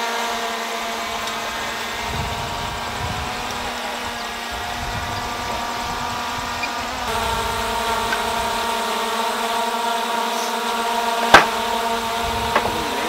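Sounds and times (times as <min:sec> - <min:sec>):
steady mechanical hum: 0:00.0 - 0:13.0
sharp knock: 0:11.3 - 0:11.6, 0:12.5 - 0:12.8.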